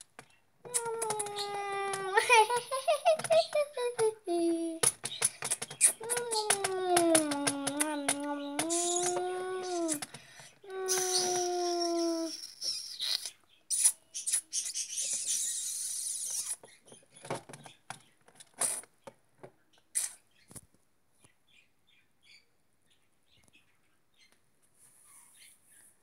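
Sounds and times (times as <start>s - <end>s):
toys clicking on a tabletop: 0.0s - 4.2s, 4.8s - 10.2s
child whining like a dog: 0.7s - 4.8s, 6.0s - 12.5s.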